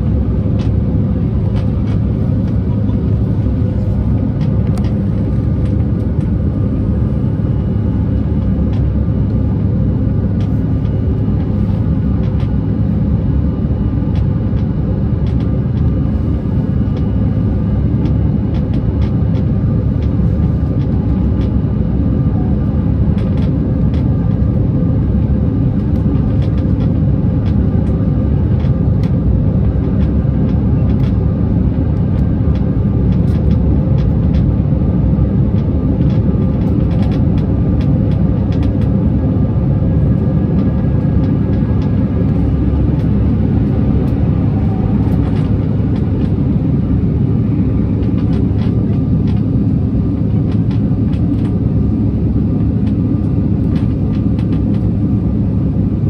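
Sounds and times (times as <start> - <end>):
airliner engines roaring: 0.0 - 56.0.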